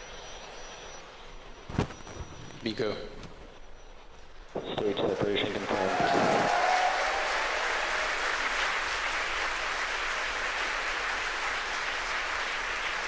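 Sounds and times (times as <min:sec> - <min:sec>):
crowd cheering: 0:04.6 - 0:13.0
crowd applauding: 0:04.8 - 0:13.0.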